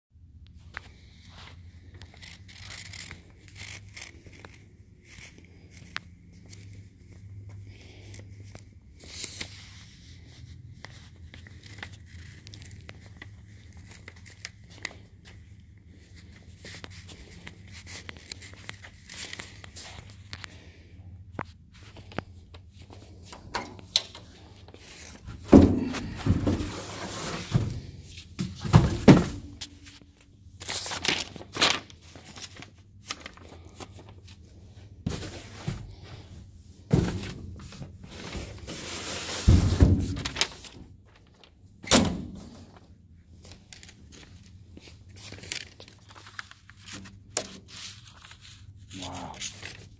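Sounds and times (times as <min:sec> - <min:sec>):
cardboard rustling scrapes: 0:24.8 - 0:30.0, 0:37.6 - 0:40.7.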